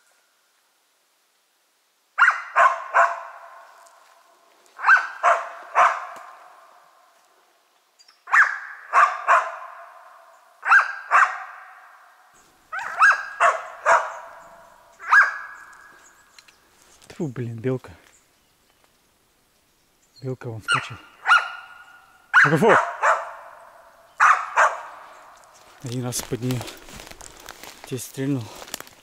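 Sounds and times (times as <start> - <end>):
dog barking: 2.2 - 3.8, 4.8 - 6.6, 8.3 - 12.0, 12.7 - 15.7, 20.7 - 25.1.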